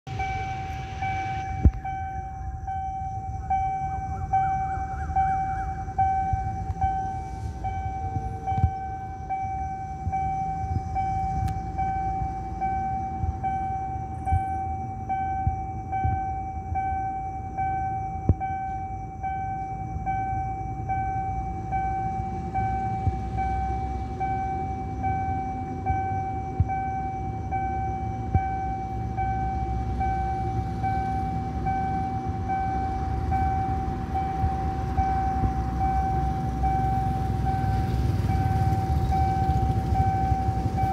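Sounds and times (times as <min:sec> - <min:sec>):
level crossing alarm pulsing: 0:00.0 - 0:40.9
road traffic rumble: 0:00.0 - 0:40.9
car passing: 0:00.1 - 0:14.4, 0:20.4 - 0:40.9.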